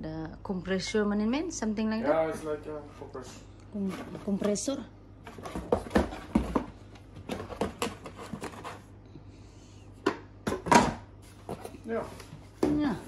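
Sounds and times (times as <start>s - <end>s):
cardboard box knocks and scrapes: 5.3s - 8.8s.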